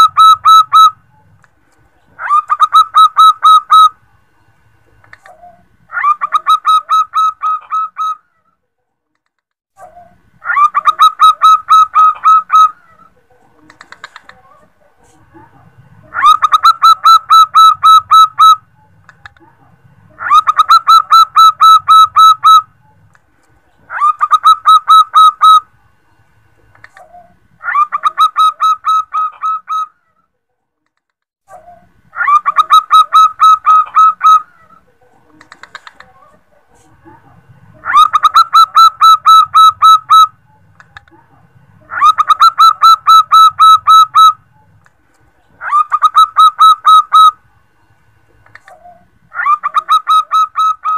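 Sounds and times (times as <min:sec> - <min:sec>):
dove cooing: 0:00.0 - 0:01.4, 0:02.2 - 0:04.0, 0:05.2 - 0:08.3, 0:09.9 - 0:14.7, 0:16.0 - 0:19.0, 0:20.1 - 0:23.0, 0:23.9 - 0:25.7, 0:26.9 - 0:29.9, 0:31.6 - 0:36.4, 0:37.7 - 0:40.8, 0:41.8 - 0:44.8, 0:45.6 - 0:47.4, 0:48.5 - 0:50.9.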